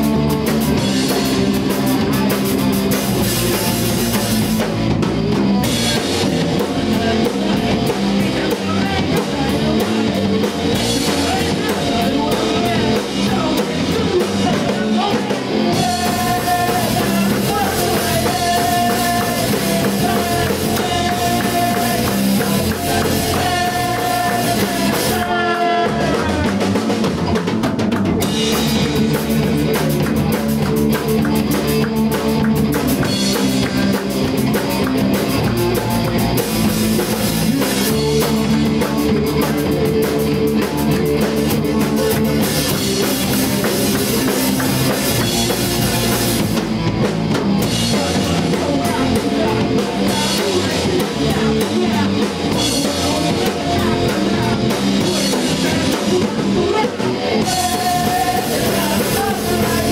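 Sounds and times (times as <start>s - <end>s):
live rock band playing: 0.0s - 59.9s
person rapping and singing: 6.6s - 26.7s, 47.9s - 59.9s.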